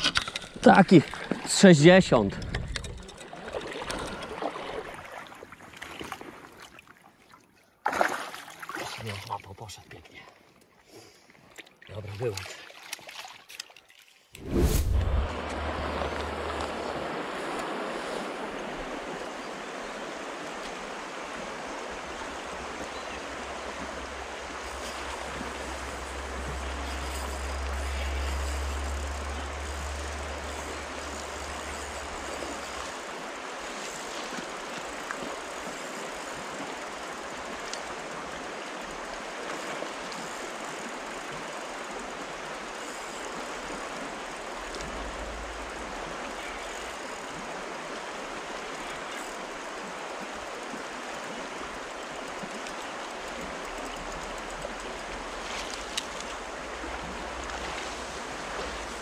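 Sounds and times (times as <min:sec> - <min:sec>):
low rumble: 0:14.4 - 0:17.6, 0:24.2 - 0:32.5
river water rushing over shallows: 0:14.4 - 0:59.0.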